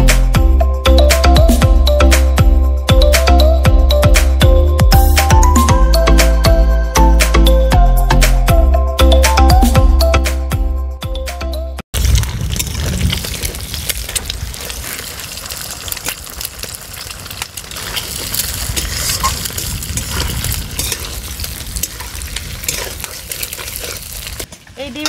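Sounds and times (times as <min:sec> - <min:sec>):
background music: 0:00.0 - 0:11.8
eggs sizzling in oil: 0:12.0 - 0:24.5
spatula scraping and stirring: 0:17.7 - 0:24.5.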